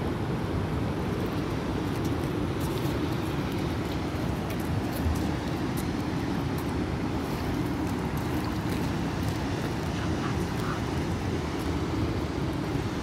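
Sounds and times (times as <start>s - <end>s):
low rumbling background noise: 0.0s - 13.0s.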